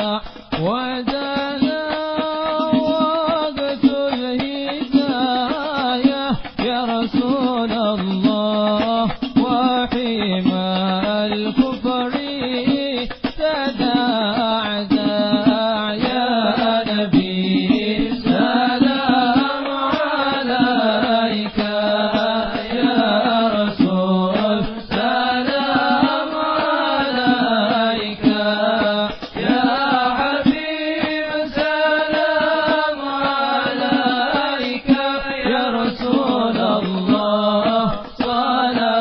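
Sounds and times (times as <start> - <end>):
devotional chanting: 0.0 - 39.0
percussion strokes: 0.0 - 39.0.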